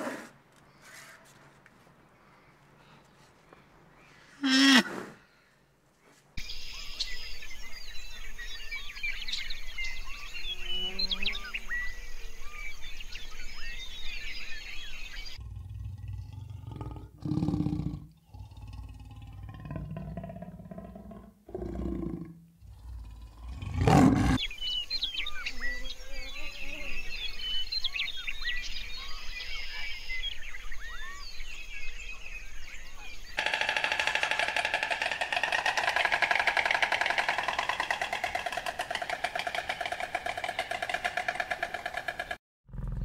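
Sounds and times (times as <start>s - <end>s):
leopard growling and roaring: 15.4s - 24.4s, 33.4s - 43.0s.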